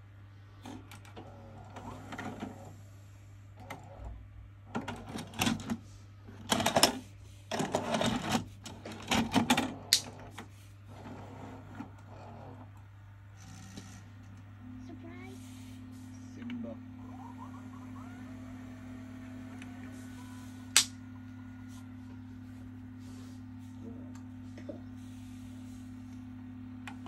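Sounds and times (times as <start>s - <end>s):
tape deck mechanism clicking and whirring: 0.6s - 2.8s, 4.7s - 14.5s, 16.4s - 21.9s
steady low hum: 5.4s - 27.0s.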